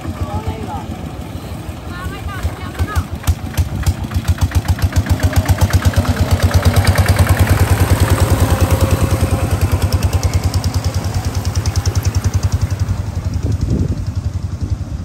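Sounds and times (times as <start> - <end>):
small engine running: 0.0 - 15.0.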